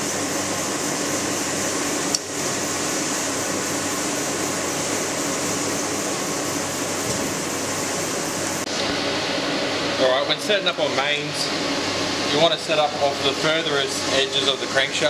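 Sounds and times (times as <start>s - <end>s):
workshop machinery humming: 0.0s - 15.0s.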